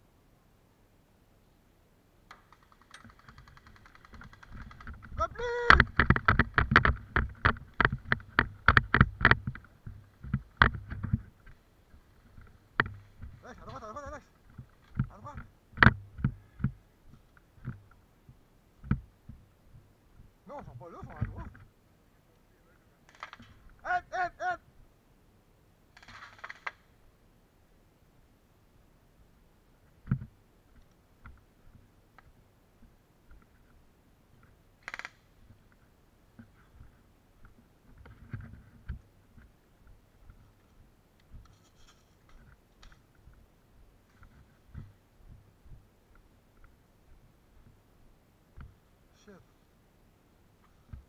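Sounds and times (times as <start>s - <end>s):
sharp clicks: 2.3s - 9.7s, 23.1s - 23.7s, 26.0s - 26.8s, 34.4s - 35.3s.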